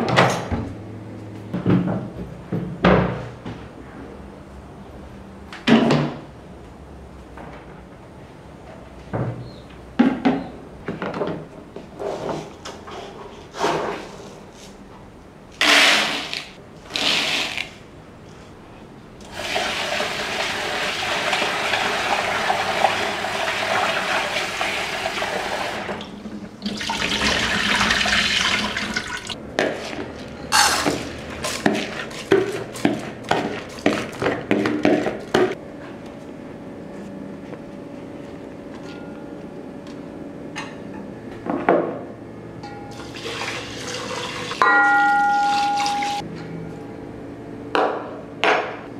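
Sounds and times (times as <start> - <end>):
tap water running into bowl: 43.0 - 44.6.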